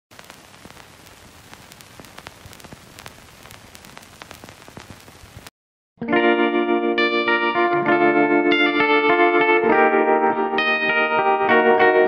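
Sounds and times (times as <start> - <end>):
static hiss with clicks: 0.1 - 5.5
electric guitar music: 6.0 - 12.0.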